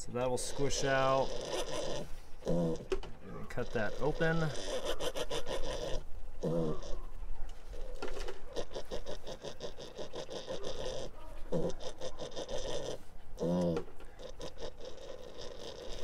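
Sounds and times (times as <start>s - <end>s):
piglet grunting: 0.2s - 16.0s
piglet panting: 0.2s - 16.0s.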